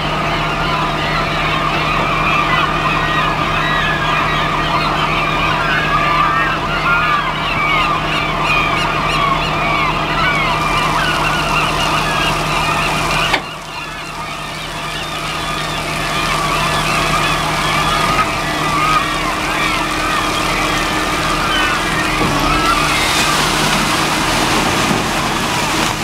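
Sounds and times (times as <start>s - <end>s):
gulls calling: 0.0s - 26.0s
truck engine idling: 0.0s - 26.0s.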